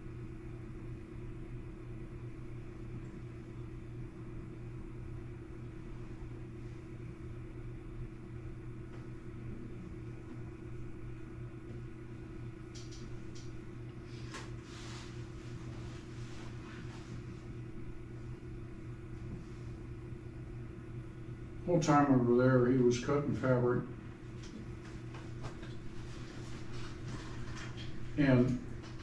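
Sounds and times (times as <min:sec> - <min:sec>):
low mechanical hum: 0:00.0 - 0:29.0
faint clicks: 0:12.7 - 0:13.5.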